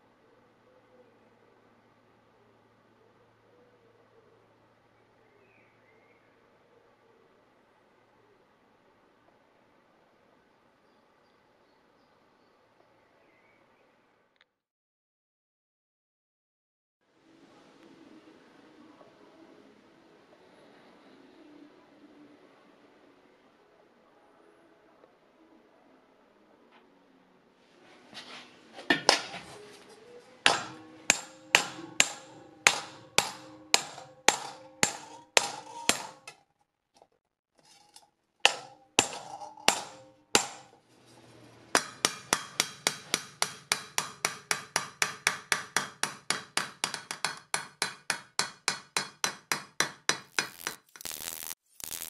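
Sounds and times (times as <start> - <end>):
hammer blows on sheet metal: 30.4 - 36.3, 38.5 - 40.8, 41.8 - 50.7.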